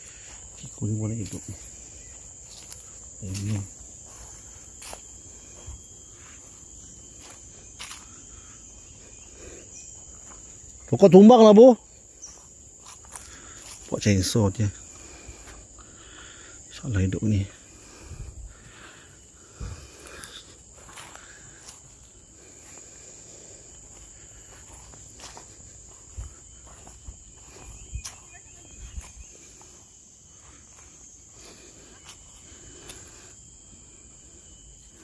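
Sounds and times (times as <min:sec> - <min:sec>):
insects chirring: 0:00.0 - 0:35.0.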